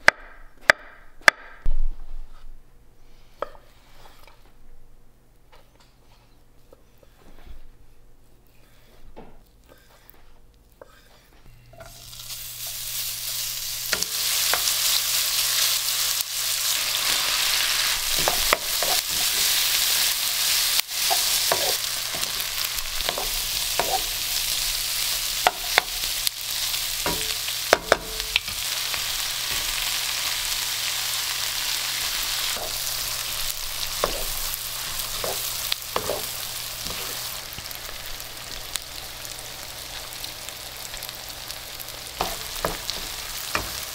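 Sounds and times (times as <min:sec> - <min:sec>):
food sizzling in frying pan: 0:11.7 - 0:43.9.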